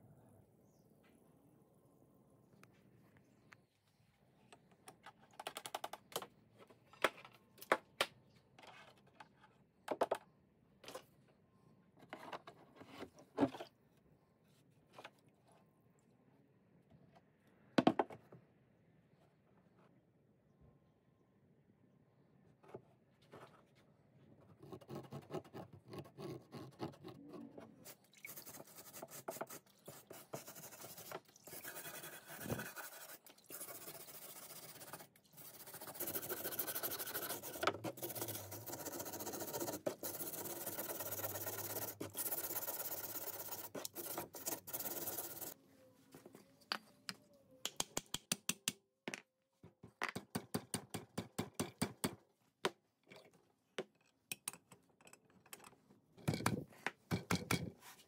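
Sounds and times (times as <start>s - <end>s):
wire brush scrubbing metal: 30.5s - 45.6s.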